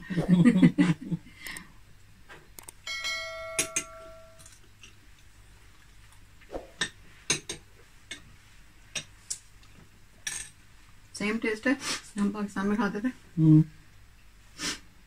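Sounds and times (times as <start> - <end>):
bell-like notification chime: 2.9 - 4.5
metal spoon clinking on plate: 2.9 - 4.6.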